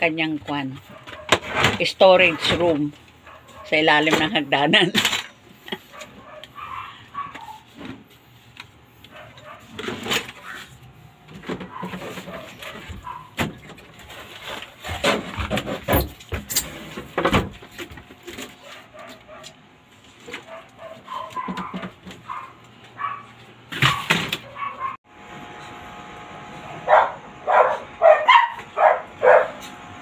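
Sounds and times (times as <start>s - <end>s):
objects knocking and clattering: 11.2s - 18.6s.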